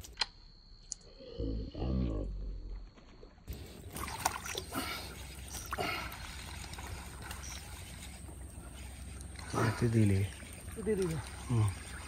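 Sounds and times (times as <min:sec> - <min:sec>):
fish thrashing in water: 0:03.3 - 0:12.0.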